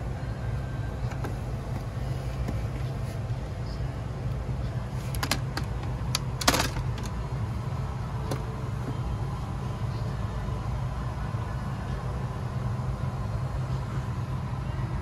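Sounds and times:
cabin air system hum: 0:00.0 - 0:15.0.

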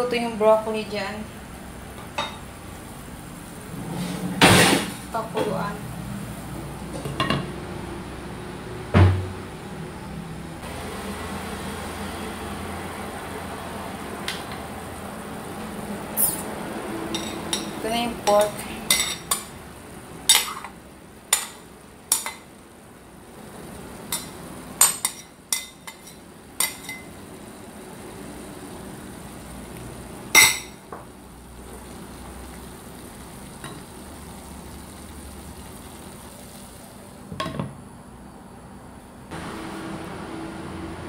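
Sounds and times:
pan sizzling: 0:10.6 - 0:37.8.

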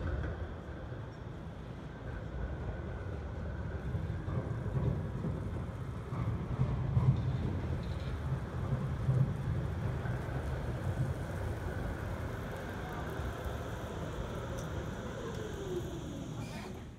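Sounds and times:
tram wheels rumbling on rails: 0:00.0 - 0:16.9
faint motor whine: 0:10.6 - 0:16.9.

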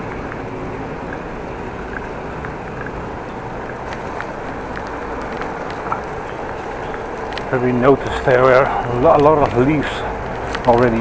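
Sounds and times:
bicycle rolling: 0:00.0 - 0:11.0
bike rattling over brick paving: 0:00.0 - 0:11.0
wind noise: 0:00.0 - 0:11.0.

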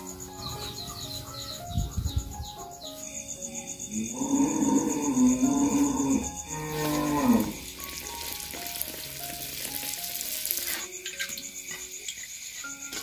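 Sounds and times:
doughnut deep-frying in oil: 0:06.5 - 0:12.6.

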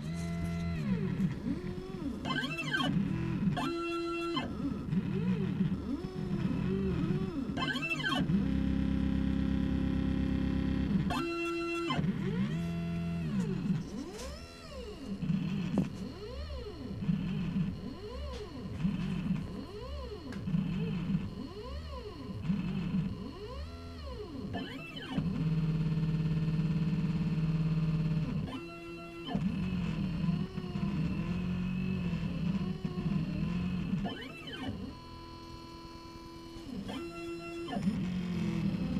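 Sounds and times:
stepper motors whining: 0:00.0 - 0:08.8
stepper motor whine: 0:00.0 - 0:38.9.

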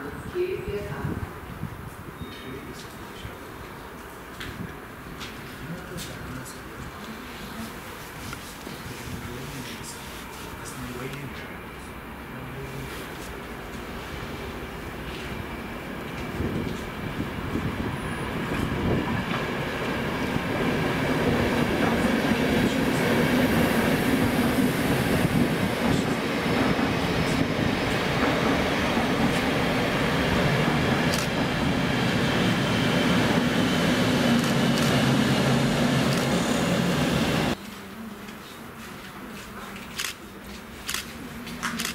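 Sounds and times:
train motor hum: 0:07.0 - 0:37.6
train wheels on rails: 0:12.6 - 0:37.6.

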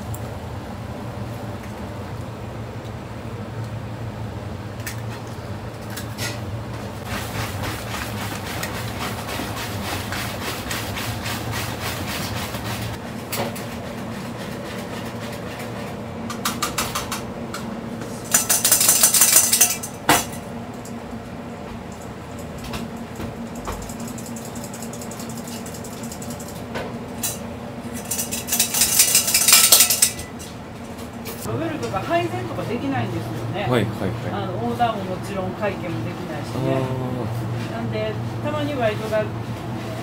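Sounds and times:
whisk beating batter in plastic bowl: 0:07.0 - 0:13.0
sieve rattling with hiss: 0:07.0 - 0:16.0, 0:18.0 - 0:20.1, 0:27.2 - 0:30.6
utensils clinking: 0:18.2 - 0:20.9, 0:23.8 - 0:30.6.

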